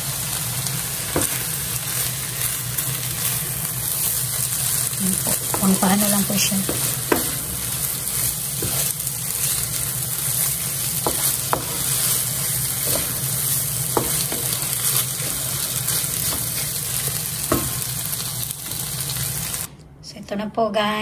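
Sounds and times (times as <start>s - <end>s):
food sizzling in a frying pan: 0.0s - 19.7s
wooden spatula scraping a pan: 5.1s - 18.4s.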